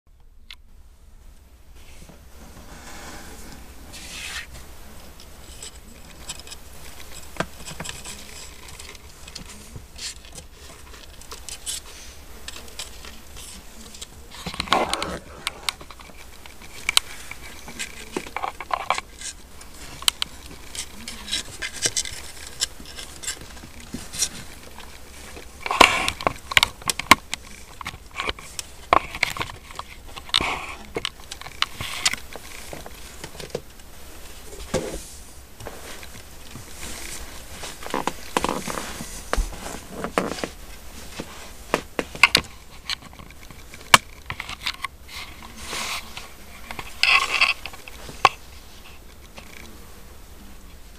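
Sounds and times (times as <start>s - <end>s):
kittens scratching on wood: 1.8s - 49.8s.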